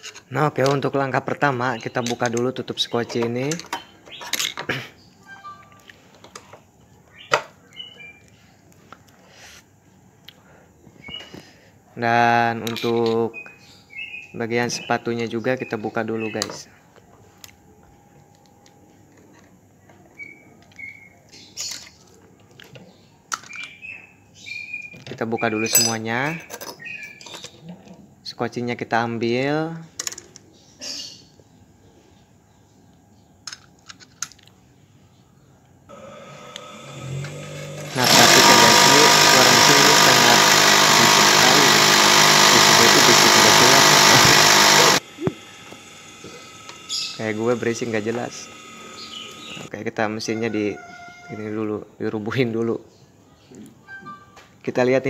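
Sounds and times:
sewing machine running at speed: 35.9 - 49.7.

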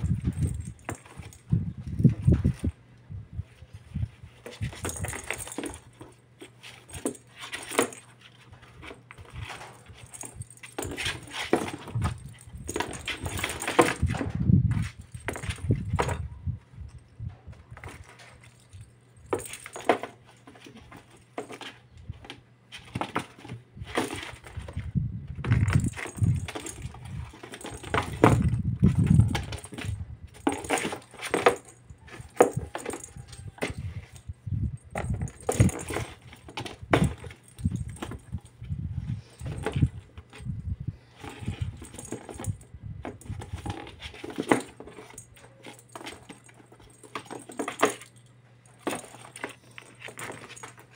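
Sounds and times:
toy ball jingling: 25.6 - 36.3.

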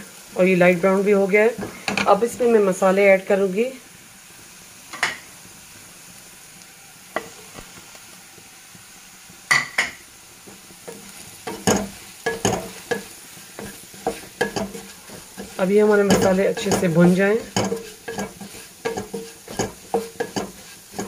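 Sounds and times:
onions sizzling in oil: 0.0 - 21.0
wooden spatula scraping pan: 10.5 - 21.0.

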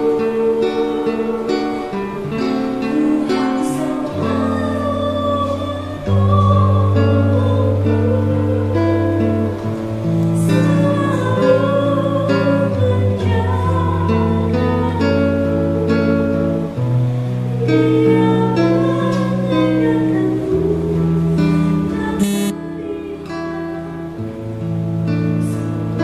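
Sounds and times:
woman singing worship song: 0.0 - 9.7, 10.4 - 16.4, 17.6 - 24.4
guitar accompaniment: 0.0 - 26.0
held bass notes: 22.2 - 22.6.

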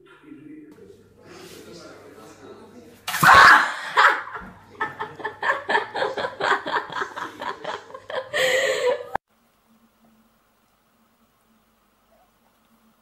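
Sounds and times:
person laughing: 3.6 - 9.2.

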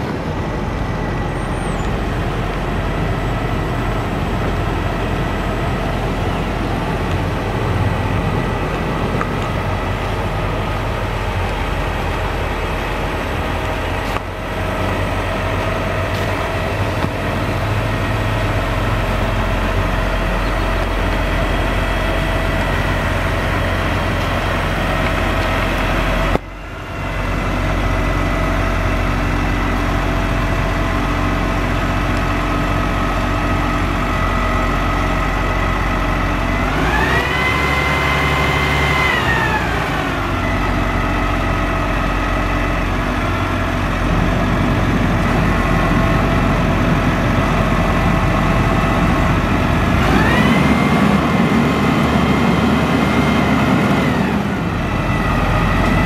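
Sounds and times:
diesel truck engine revving: 0.0 - 56.0.

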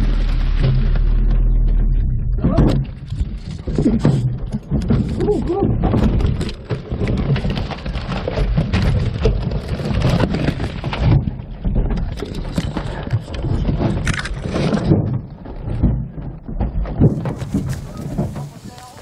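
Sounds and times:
camera handling noise: 14.0 - 14.4.

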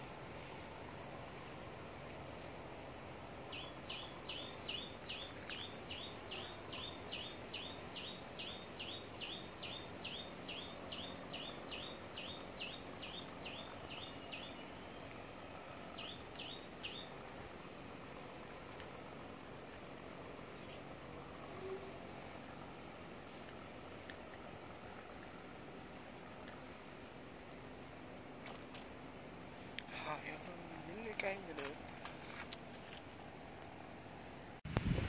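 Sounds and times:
background hiss: 0.0 - 35.0
bird chirping: 3.5 - 17.4.

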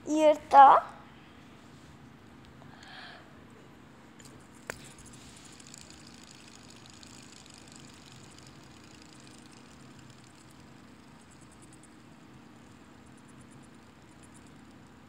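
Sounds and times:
fidget spinner whirring: 4.1 - 15.0
fidget spinner click: 4.2 - 15.0.

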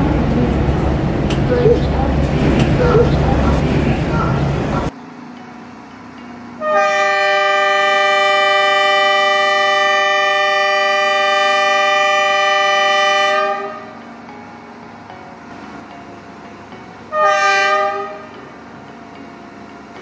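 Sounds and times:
train air horn blast: 6.6 - 13.9, 17.1 - 18.3.

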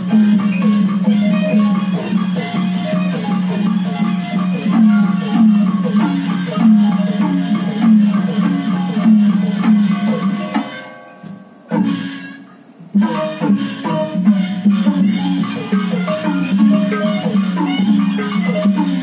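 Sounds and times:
traditional ensemble music: 0.0 - 19.0.

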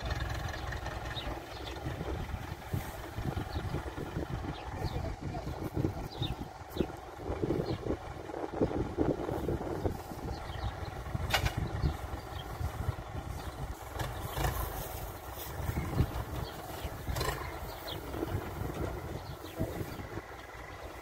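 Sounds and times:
tractor diesel engine running: 0.0 - 21.0
wind buffeting microphone: 0.0 - 21.0.

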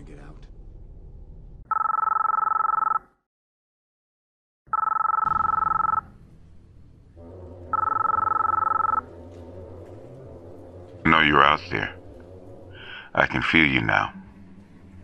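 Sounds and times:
telephone ringing: 1.7 - 3.2, 4.7 - 6.2, 7.7 - 9.1.

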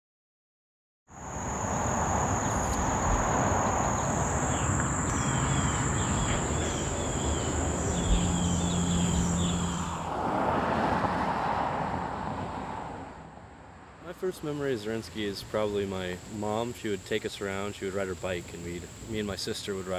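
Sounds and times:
insects droning: 1.1 - 12.6, 14.1 - 19.9
low hum: 1.2 - 10.0.

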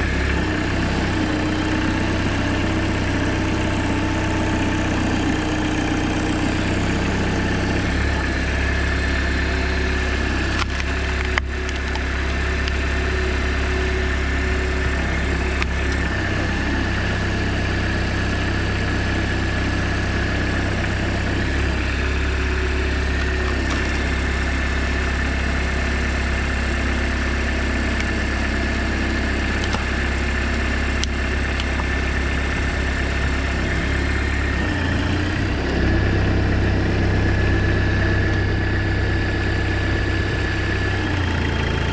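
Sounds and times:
tractor engine running: 0.0 - 41.9.

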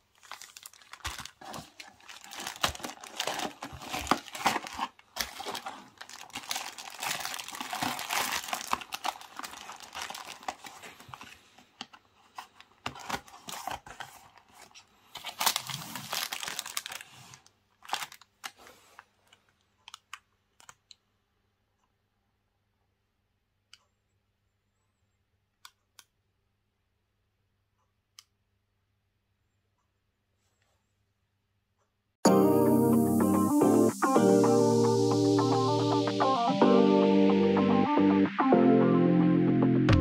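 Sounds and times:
plastic wrapping crinkling: 0.0 - 20.2.

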